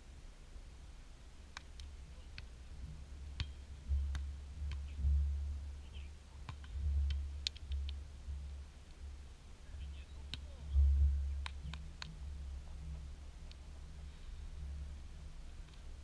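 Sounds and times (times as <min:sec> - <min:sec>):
volleyball taps: 0:03.3 - 0:05.0, 0:06.4 - 0:08.0.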